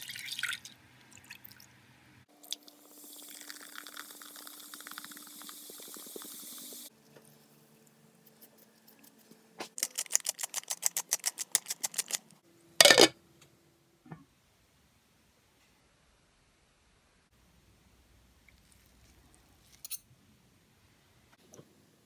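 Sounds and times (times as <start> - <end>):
soda pouring: 0.0 - 1.6, 2.4 - 6.9
pepper mill clicking: 9.8 - 13.1
glass lid clattering: 12.8 - 13.1.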